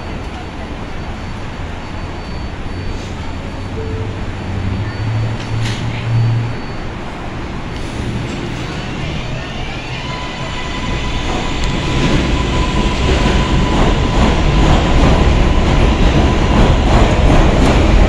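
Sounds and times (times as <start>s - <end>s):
subway train humming: 0.0s - 18.0s
train doors sliding shut: 5.2s - 6.2s.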